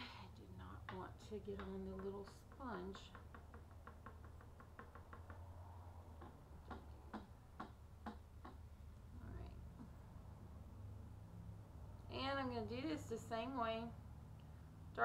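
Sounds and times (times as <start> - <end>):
sponge tapping on ink pad: 0.8 - 5.5, 6.2 - 8.6.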